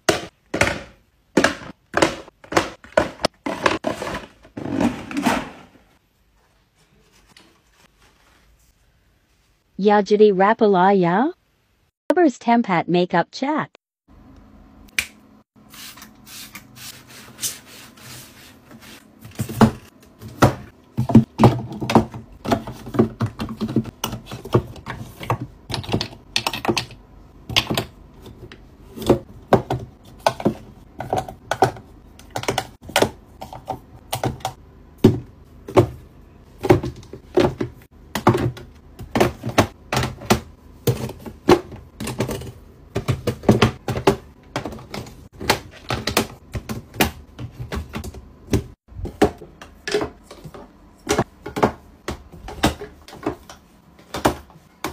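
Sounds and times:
makeup containers clicking and knocking: 21.0s - 28.0s, 29.4s - 34.6s.

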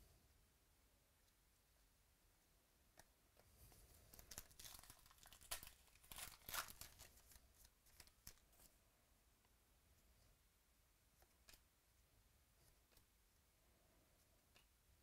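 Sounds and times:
foil wrapper tearing: 4.1s - 8.4s.

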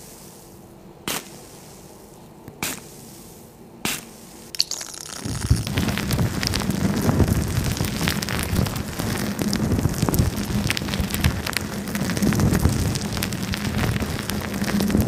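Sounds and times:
plastic wrap crinkling: 4.6s - 15.0s.

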